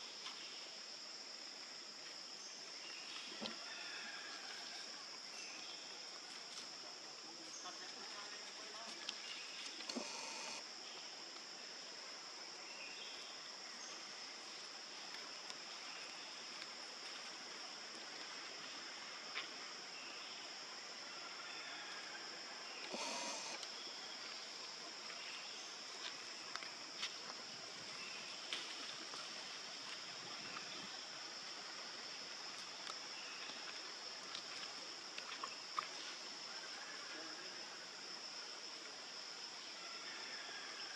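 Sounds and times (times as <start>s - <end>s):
high-pitched insect drone: 10.0s - 10.6s, 22.9s - 23.6s.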